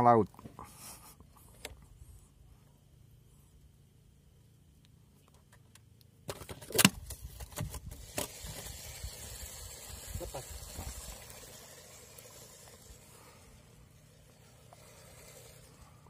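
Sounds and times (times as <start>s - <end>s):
steady hiss: 7.9s - 16.0s.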